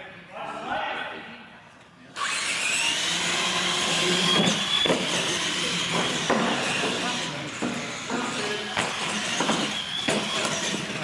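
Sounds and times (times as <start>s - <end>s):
electric motor whine: 2.2s - 7.4s.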